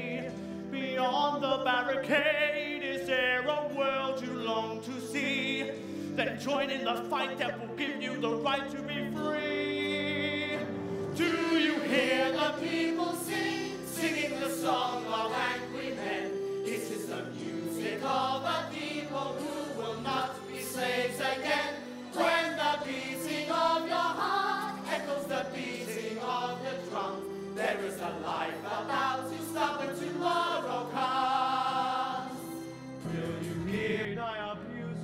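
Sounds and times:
choir singing with accompaniment: 8.8s - 34.2s.

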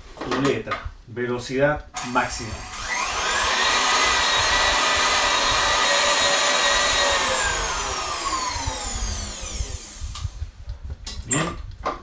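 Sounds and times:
stand mixer motor whine: 2.6s - 10.4s.

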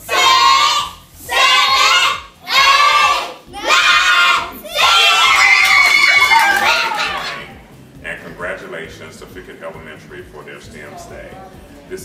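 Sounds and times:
children chanting in unison: 0.0s - 5.3s.

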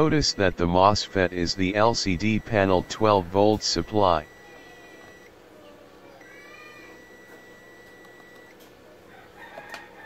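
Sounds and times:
low steady hum: 0.0s - 5.3s
steady high tone: 0.0s - 5.3s.

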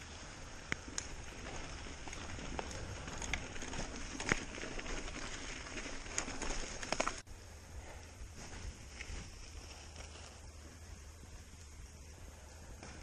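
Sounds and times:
bike tyres crunching on stones: 0.0s - 7.3s, 8.4s - 12.0s
low rumble of passing cyclist: 0.0s - 13.0s
bike rattling clicks and knocks: 0.8s - 7.2s.

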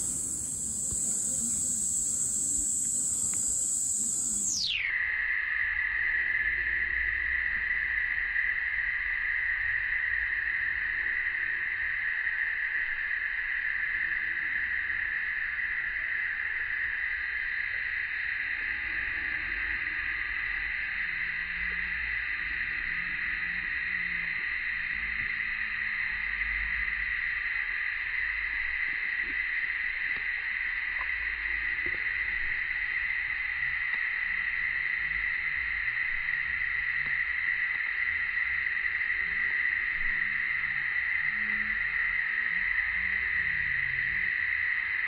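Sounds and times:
cicadas chorus: 0.0s - 45.0s.

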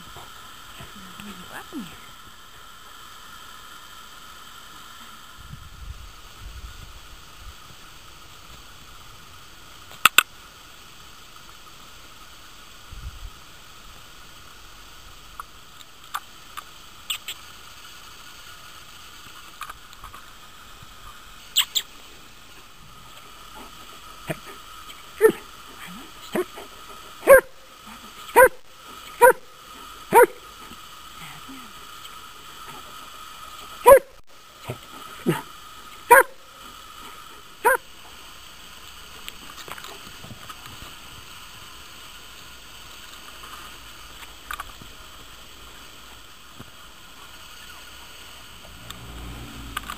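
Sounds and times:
dog barking: 27.2s - 27.5s, 28.4s - 28.6s, 29.2s - 29.4s, 30.1s - 30.4s, 33.9s - 34.1s, 36.1s - 36.4s, 37.6s - 37.8s.

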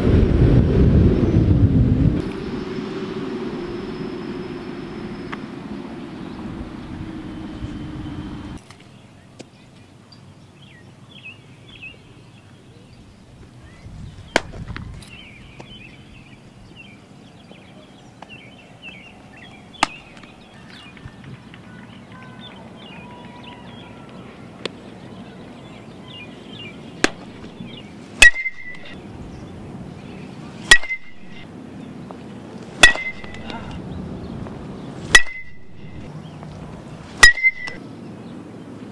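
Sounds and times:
birds chirping: 2.2s - 38.9s
bat cracks: 14.3s - 15.7s, 19.8s - 21.6s, 27.0s - 28.9s, 30.6s - 31.4s, 32.8s - 33.8s, 35.0s - 36.1s, 37.2s - 37.8s
metal bat pinging balls: 19.8s - 20.3s, 27.0s - 29.0s, 30.7s - 31.4s, 32.8s - 33.8s, 35.1s - 36.1s, 37.2s - 37.8s.

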